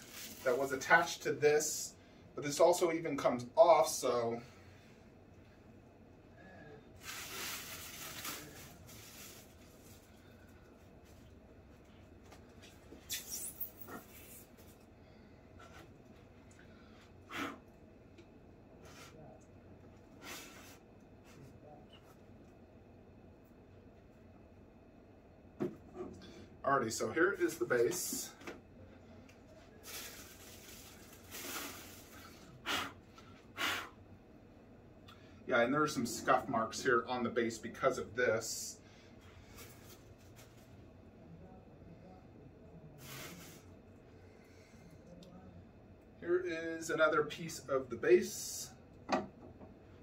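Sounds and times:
packaging rustling and scraping: 0.0s - 0.7s
packing material rustling: 0.0s - 0.8s, 7.0s - 10.2s, 29.8s - 32.2s.

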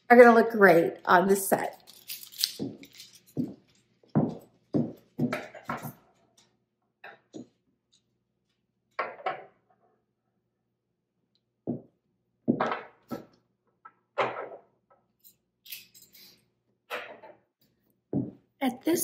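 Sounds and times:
metal cutlery clinking on table: 1.8s - 3.4s, 15.2s - 16.4s.

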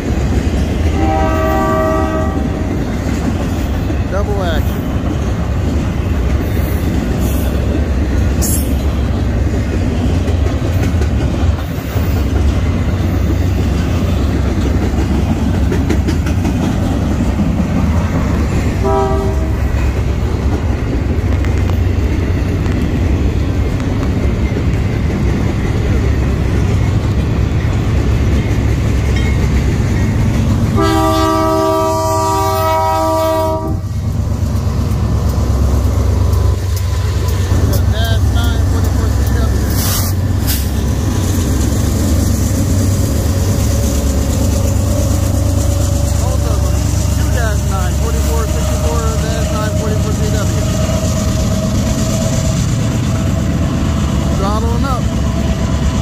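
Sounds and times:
freight train rumbling past: 0.0s - 56.0s
train wheels clickety-clack: 0.0s - 56.0s
locomotive horn: 0.9s - 2.8s, 18.8s - 19.8s, 30.7s - 33.9s.

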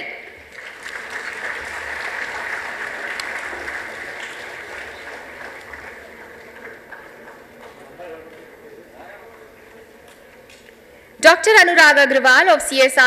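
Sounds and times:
audience applauding: 0.4s - 9.5s.

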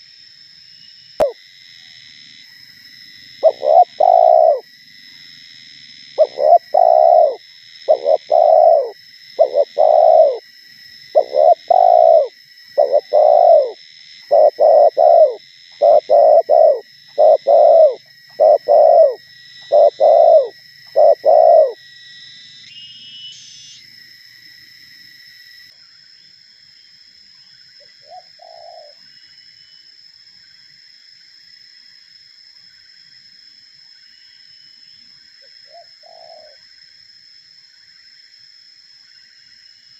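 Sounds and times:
dove cooing: 3.4s - 4.6s, 6.2s - 10.4s, 11.1s - 21.8s, 28.1s - 29.0s, 35.7s - 36.6s.

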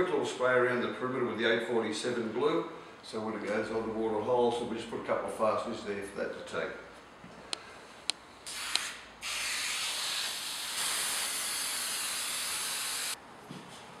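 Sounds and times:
aerosol can spraying hiss: 8.5s - 13.2s.

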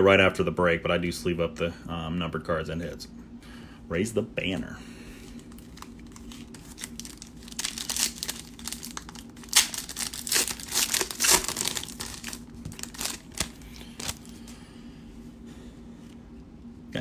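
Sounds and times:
foil wrapper tearing and crinkling: 5.5s - 14.4s.

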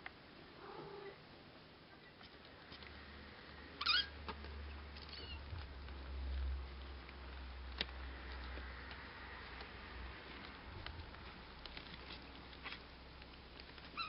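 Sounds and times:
low steady hum: 0.0s - 14.0s
kittens mewing: 3.8s - 4.2s.

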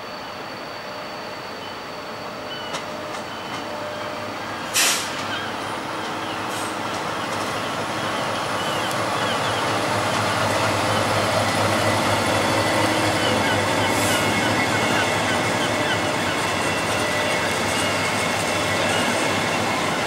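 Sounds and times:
diesel locomotive passing: 0.0s - 20.0s
air hiss: 4.7s - 5.3s.

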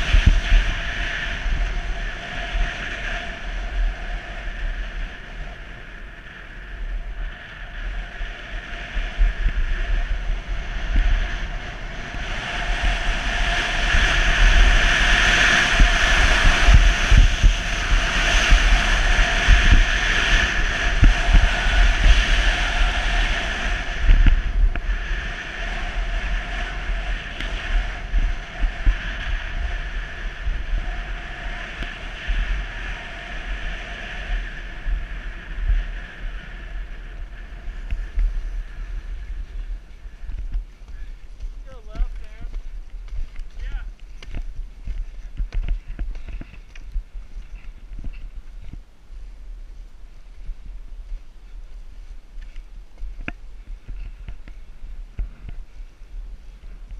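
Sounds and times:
wind buffeting microphone: 0.0s - 56.9s
skis hissing over snow: 7.8s - 42.6s.

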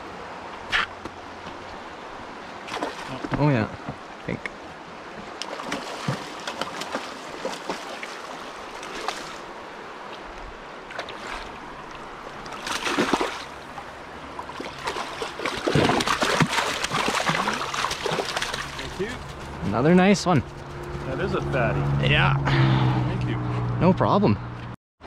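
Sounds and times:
fish splashing and thrashing in water: 2.6s - 3.2s, 5.4s - 9.5s, 12.3s - 13.8s, 14.4s - 19.4s.

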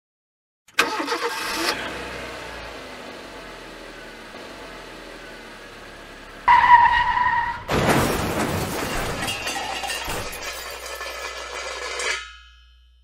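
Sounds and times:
tyre screech: 6.5s - 7.7s
car crash with breaking glass: 6.5s - 12.1s.

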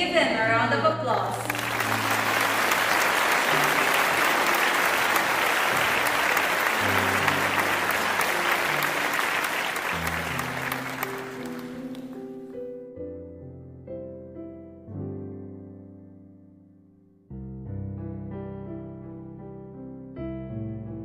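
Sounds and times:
background music: 0.0s - 17.0s
audience clapping: 1.3s - 12.4s.

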